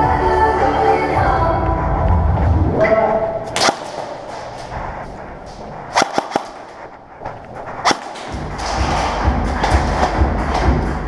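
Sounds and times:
airsoft gun shots: 0:03.5 - 0:04.6, 0:05.9 - 0:06.8, 0:07.8 - 0:08.4.

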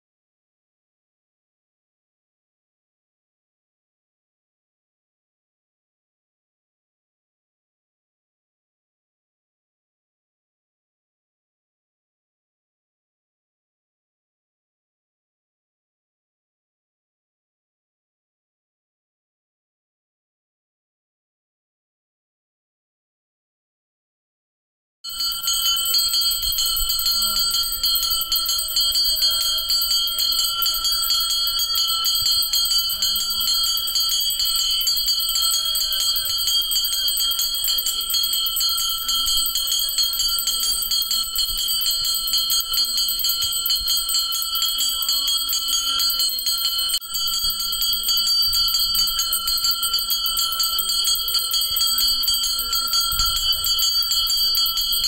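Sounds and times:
hand bell ringing rapidly: 0:25.1 - 0:55.0
faint voices: 0:25.2 - 0:55.0.

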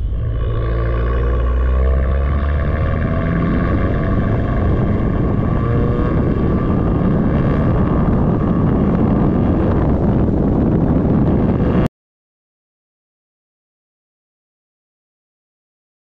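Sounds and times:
car engine running: 0:00.0 - 0:11.9
wind and road noise: 0:00.0 - 0:11.9.

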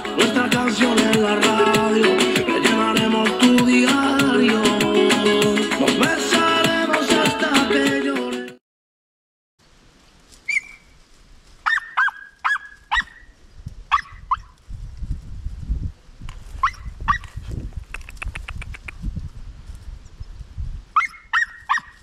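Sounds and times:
hounds yelping: 0:11.6 - 0:13.3, 0:13.9 - 0:14.5, 0:16.6 - 0:17.4, 0:21.0 - 0:22.0.

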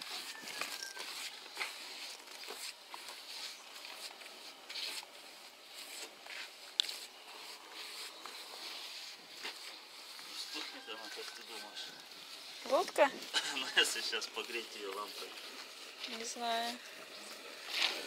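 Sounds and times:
paint brush scratching on wood: 0:00.0 - 0:18.0.

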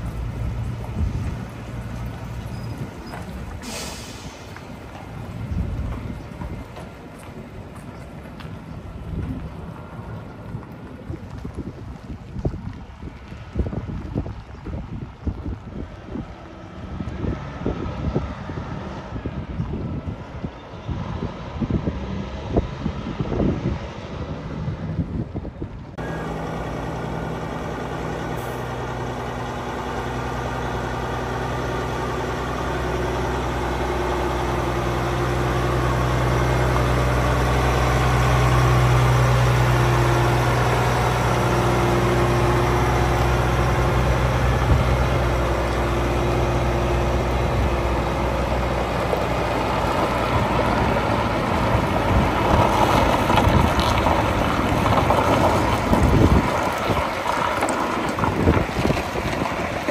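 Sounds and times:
truck diesel engine droning: 0:00.0 - 0:59.9.

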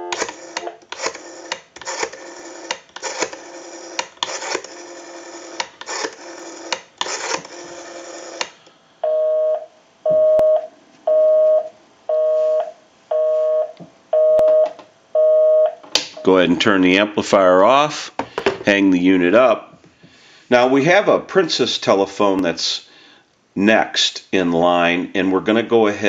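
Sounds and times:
telephone busy signal tone: 0:00.0 - 0:00.8, 0:09.0 - 0:16.4
rotary dial turning and clicking: 0:00.2 - 0:08.6.

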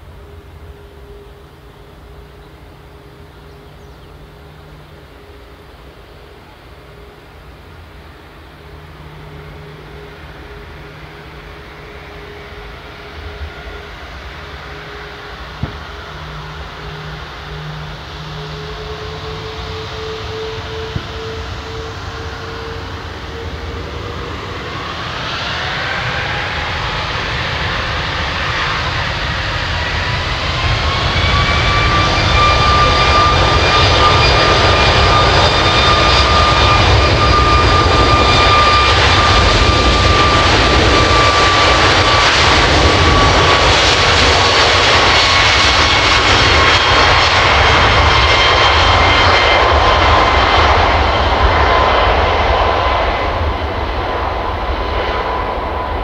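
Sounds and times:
jet engine roar: 0:00.0 - 0:56.0
jet engines whining: 0:00.0 - 0:56.0.

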